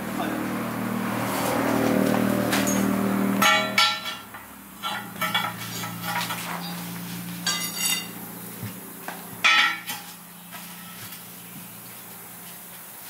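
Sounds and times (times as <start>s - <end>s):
metal clanking of rim and lever: 3.4s - 6.8s, 7.4s - 8.2s.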